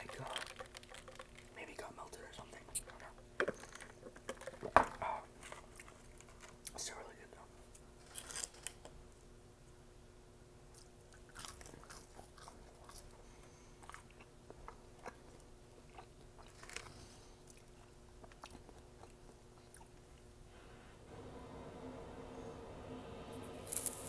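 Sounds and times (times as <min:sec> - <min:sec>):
chewing and biting food: 0:00.0 - 0:01.6, 0:10.7 - 0:20.2.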